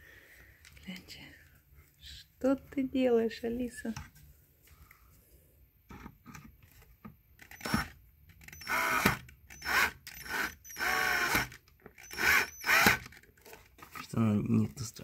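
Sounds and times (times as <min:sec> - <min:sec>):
cordless drill driving bolts: 0:07.4 - 0:13.2.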